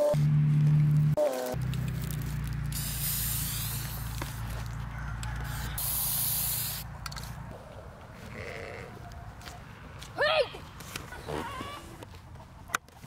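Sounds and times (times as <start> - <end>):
spray paint can hissing: 2.7 - 4.4, 5.4 - 7.2.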